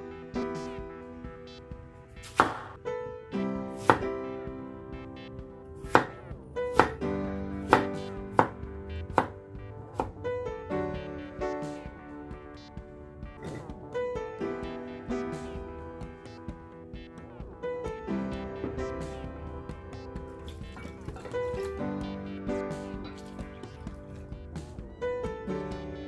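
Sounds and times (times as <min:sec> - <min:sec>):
soft piano music: 0:00.0 - 0:26.0
knife chopping on wooden board: 0:02.3 - 0:02.7.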